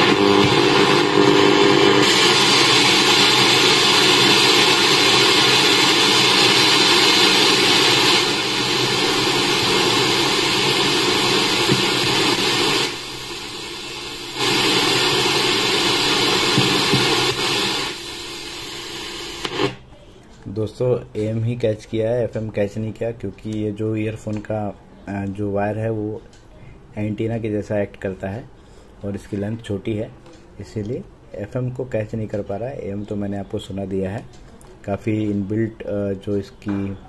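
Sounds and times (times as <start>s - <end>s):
radio static hiss: 0.0s - 19.9s.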